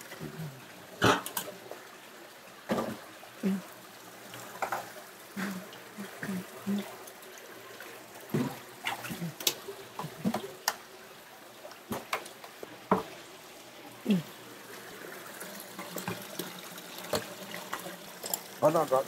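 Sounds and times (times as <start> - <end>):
water trickling: 0.0 - 19.0
splashes and knocks in water: 8.3 - 10.8.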